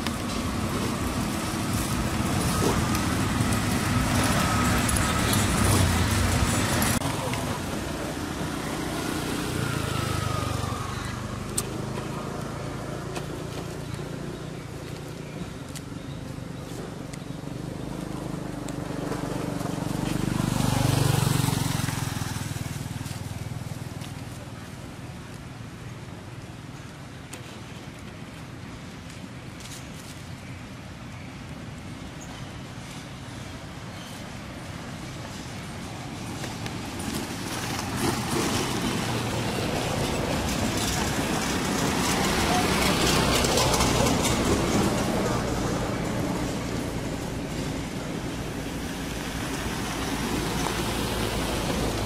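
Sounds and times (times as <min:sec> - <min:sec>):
vehicle engine passing by: 0:00.0 - 0:14.8, 0:16.8 - 0:23.8, 0:35.3 - 0:52.0.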